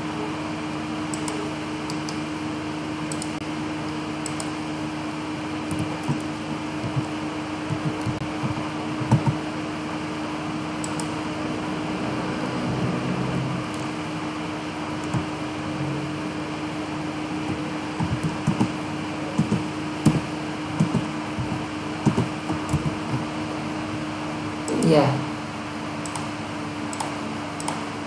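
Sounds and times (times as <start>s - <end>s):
fan hum: 0.0s - 28.0s
keyboard typing: 1.0s - 2.3s, 3.1s - 4.6s, 5.6s - 9.6s, 10.7s - 11.4s, 13.6s - 14.1s, 14.9s - 15.4s, 17.4s - 23.4s, 26.0s - 27.9s
mouse clicks: 1.1s - 2.2s, 3.1s - 3.4s, 4.2s - 4.6s, 10.8s - 11.2s, 26.0s - 26.3s, 26.9s - 27.8s.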